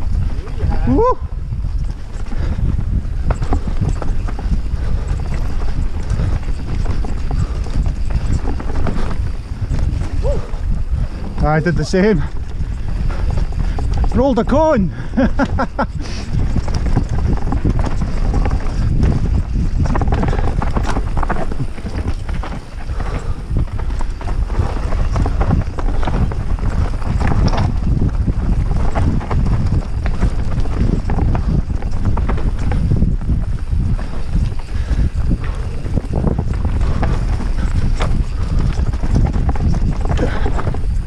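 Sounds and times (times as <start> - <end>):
bike tyres rumbling on trail: 0.0 - 41.0
bike clattering over rocks: 15.1 - 35.4.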